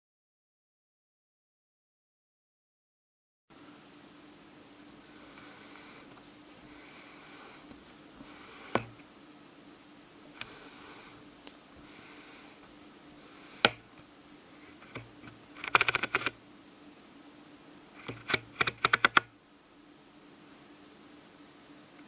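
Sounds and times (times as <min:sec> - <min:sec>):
faint steady hum: 0:03.5 - 0:22.0
sharp clicks in rapid bursts: 0:14.8 - 0:16.4, 0:18.0 - 0:19.3.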